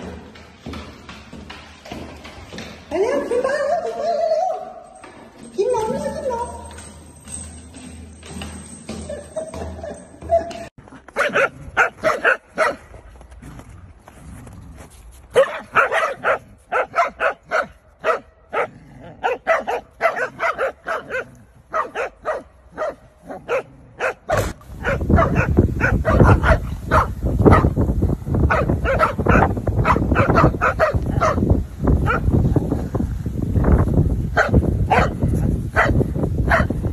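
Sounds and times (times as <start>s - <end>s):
dogs barking and growling: 6.7s - 12.8s, 15.4s - 27.8s, 28.4s - 32.6s, 34.4s - 36.9s.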